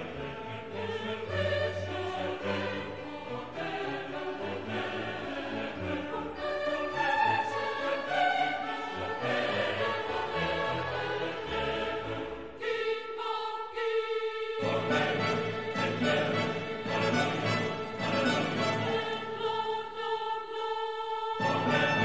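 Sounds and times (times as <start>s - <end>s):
background music sustained notes: 0.0s - 22.0s.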